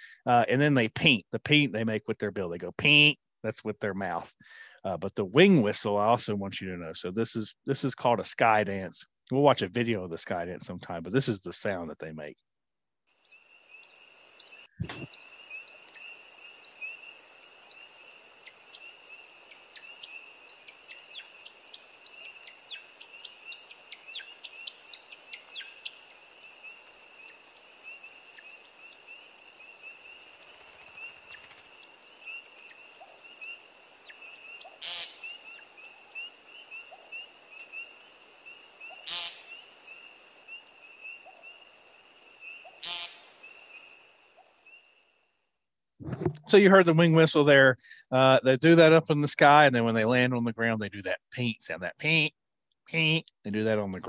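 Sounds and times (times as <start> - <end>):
bird peent calls: 13.3 - 44.9
bird wing whistle twittering: 30.4 - 37.9, 38.5 - 40.0, 42.5 - 43.9.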